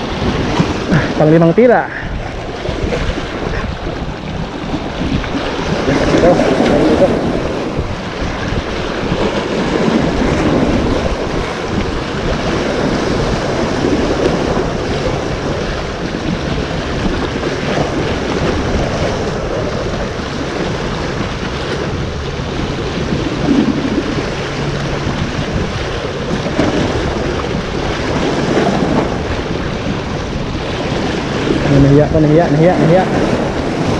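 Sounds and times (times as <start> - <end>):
waves washing over rocks: 0.0 - 33.9
wind buffeting microphone: 0.0 - 33.9.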